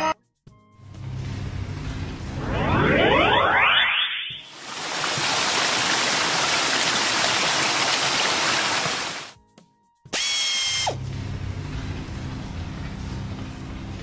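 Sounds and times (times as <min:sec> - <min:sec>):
water jets spraying: 0:04.5 - 0:09.4.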